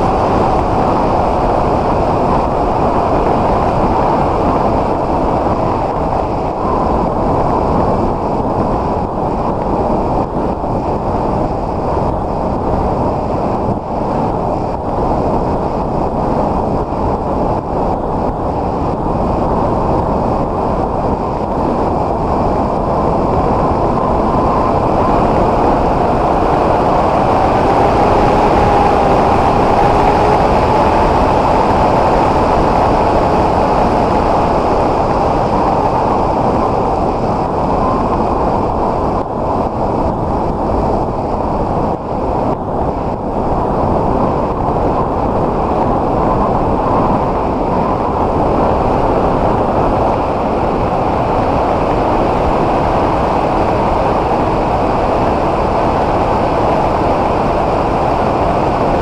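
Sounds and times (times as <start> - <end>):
faint wavering whine: 0.0 - 59.0
wind rush over microphone: 0.0 - 59.0
electric motor and propeller hum: 21.5 - 38.9.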